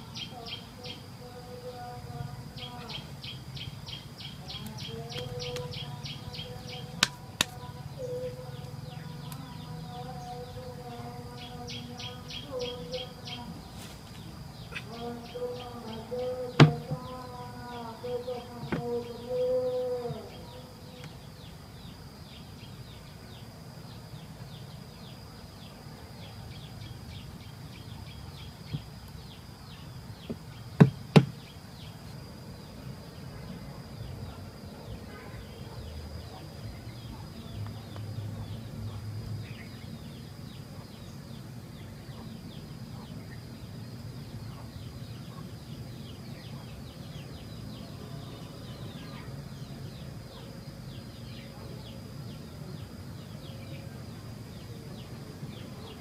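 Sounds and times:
faint chirping: 0.0 - 56.0
sharp knocks: 16.6 - 17.1, 30.3 - 31.4.

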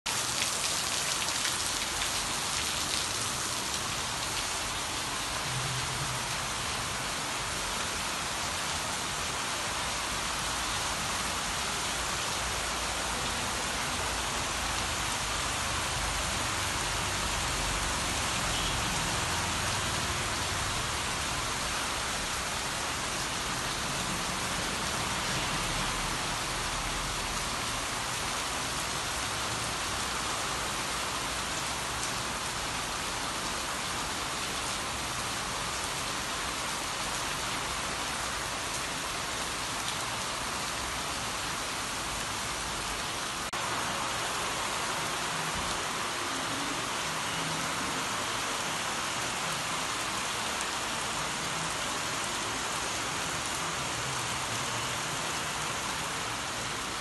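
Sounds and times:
heavy rain pouring: 0.1 - 57.0.

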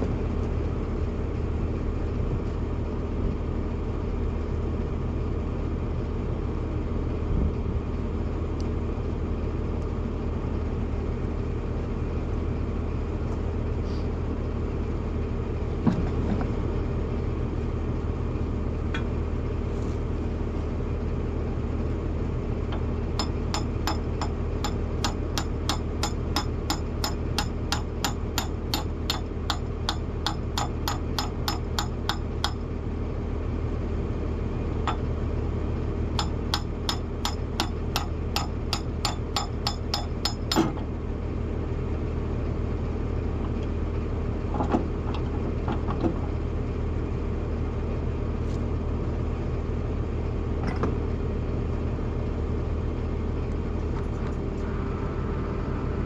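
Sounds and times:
diesel engine idling: 16.6 - 50.5.

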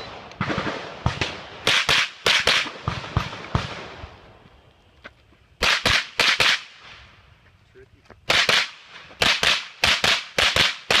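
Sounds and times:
rapid rifle gunshots: 0.4 - 4.0, 5.6 - 6.8, 8.3 - 11.0.

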